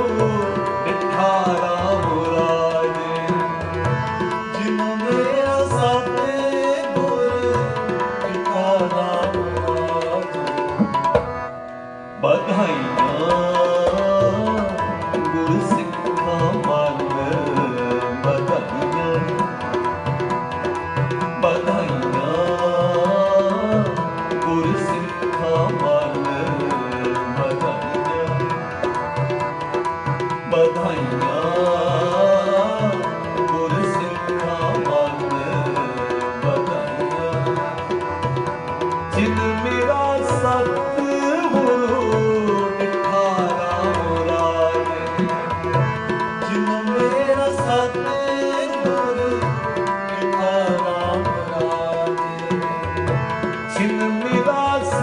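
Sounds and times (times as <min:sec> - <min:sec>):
harmoniums playing chords: 0:00.0 - 0:55.0
tabla rhythm: 0:00.0 - 0:55.0
men singing: 0:30.5 - 0:37.6.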